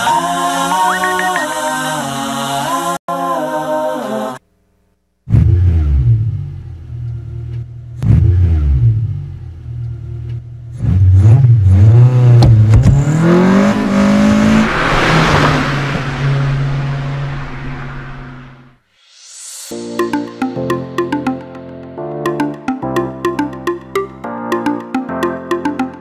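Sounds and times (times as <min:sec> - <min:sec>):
engine revving: 0:08.0 - 0:09.9, 0:10.7 - 0:18.8.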